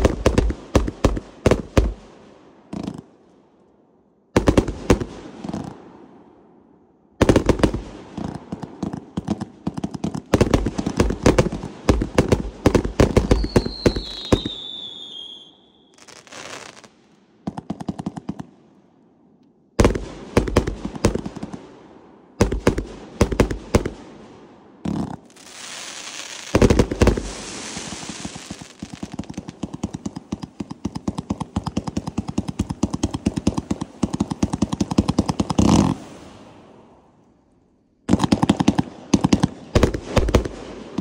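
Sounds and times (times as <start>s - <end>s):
fireworks reports and crackling: 0.0s - 3.1s, 4.4s - 5.8s, 7.2s - 18.5s, 19.8s - 21.8s, 22.4s - 36.6s, 38.1s - 41.0s
falling firework whistle: 13.2s - 16.9s.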